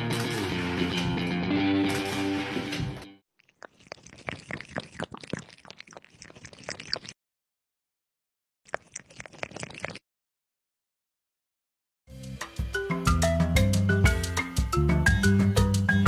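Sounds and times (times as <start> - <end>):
kitten lapping water: 3.4 - 7.2, 8.7 - 10.0.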